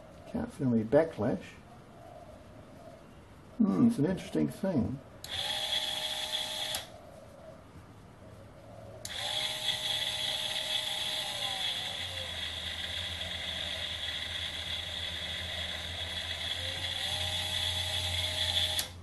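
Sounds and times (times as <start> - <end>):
rotary tool motor whining: 5.3 - 6.9, 9.1 - 19.0
gearbox whirring: 9.1 - 19.0.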